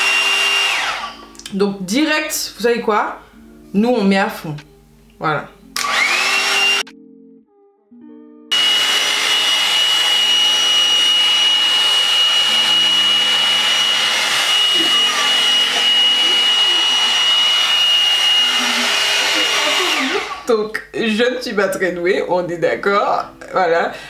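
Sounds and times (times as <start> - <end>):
hot air brush blowing: 0.0 - 1.2, 5.8 - 6.9, 8.5 - 20.5
fan motor whine: 8.5 - 20.4.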